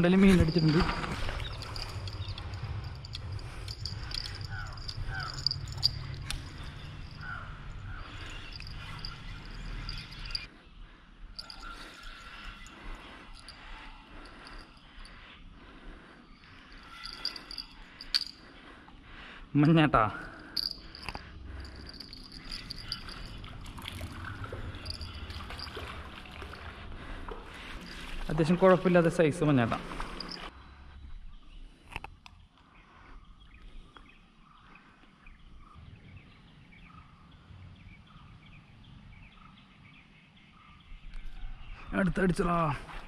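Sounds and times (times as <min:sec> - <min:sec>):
insects trilling: 0:00.6 - 0:10.5, 0:16.2 - 0:18.4.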